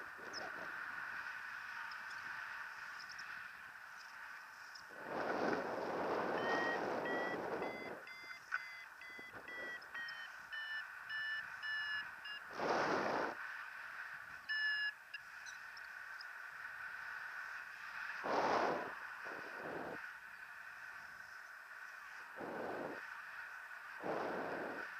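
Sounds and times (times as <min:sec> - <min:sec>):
wind rushing over microphone: 0:04.9 - 0:08.1, 0:12.5 - 0:13.4, 0:18.2 - 0:20.0, 0:22.3 - 0:23.1, 0:23.9 - 0:24.9
variometer beeping: 0:06.2 - 0:12.5, 0:14.4 - 0:15.6.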